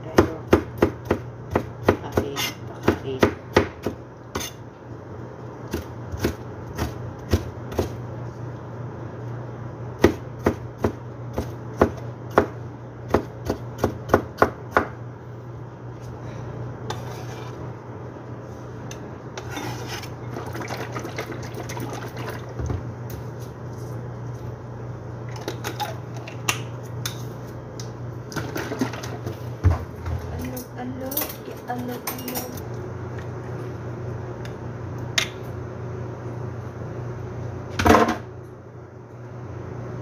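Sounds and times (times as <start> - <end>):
steady low hum: 0.0 - 40.0
knife scraping board: 4.4 - 4.6, 16.9 - 17.6, 19.4 - 20.2
knife chopping on plastic board: 13.1 - 15.0.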